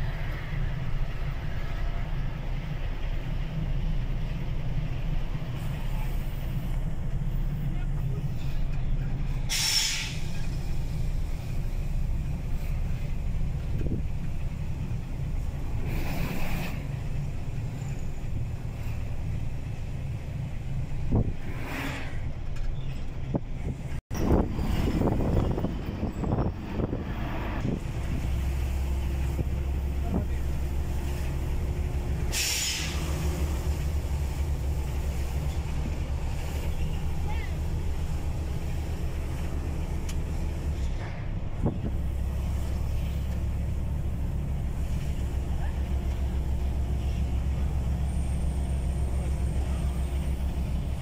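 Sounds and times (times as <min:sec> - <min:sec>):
truck engine droning: 0:00.0 - 0:51.0
short hiss: 0:09.5 - 0:10.6, 0:32.3 - 0:33.1.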